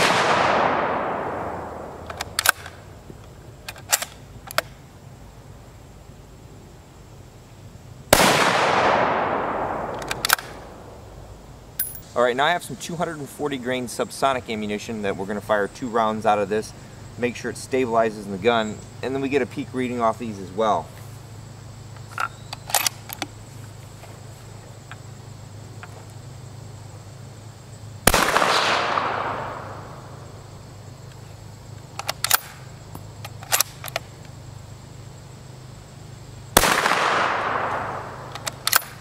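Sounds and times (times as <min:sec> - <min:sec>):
rifle shots with echo: 0:00.0 - 0:02.6, 0:08.1 - 0:11.0, 0:28.1 - 0:30.4, 0:36.6 - 0:39.0
rifle bolt clicks: 0:02.0 - 0:02.8, 0:03.7 - 0:04.7, 0:09.9 - 0:10.6, 0:22.2 - 0:23.3, 0:32.0 - 0:32.6, 0:33.2 - 0:34.0, 0:37.5 - 0:39.0.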